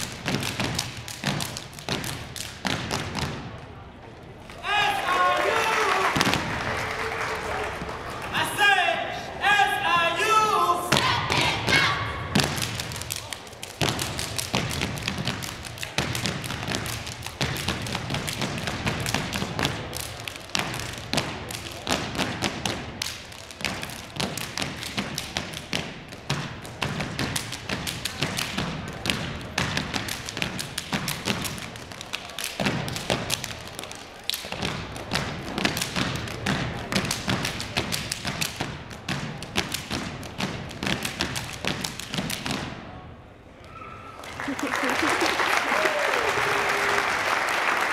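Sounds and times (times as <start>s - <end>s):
hand claps and slaps: 0.0s - 3.4s, 5.5s - 8.3s, 12.4s - 42.7s.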